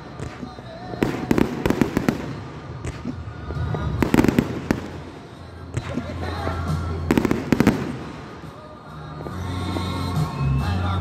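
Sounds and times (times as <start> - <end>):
fireworks bangs: 0.0 - 8.8.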